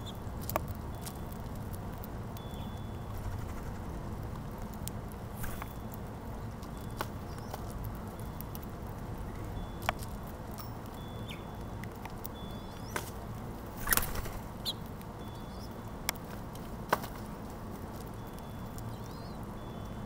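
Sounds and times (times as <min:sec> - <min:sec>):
low background noise: 0:00.0 - 0:20.0
beak clicking and tapping on seed: 0:04.2 - 0:20.0.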